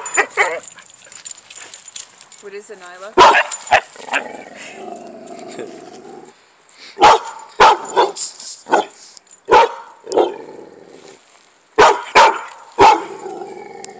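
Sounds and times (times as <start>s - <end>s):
puppy barking: 0.0s - 0.7s, 3.2s - 3.9s, 7.0s - 10.4s, 11.8s - 13.2s.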